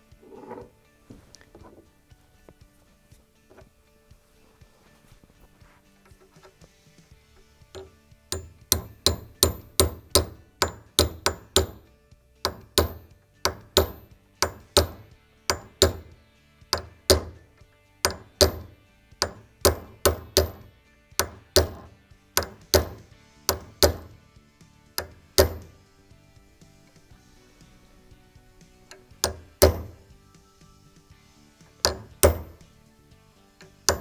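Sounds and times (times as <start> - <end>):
hammer tapping metal punch: 7.7 - 24.2, 25.0 - 25.8, 28.9 - 30.1, 31.7 - 32.7, 33.6 - 34.0.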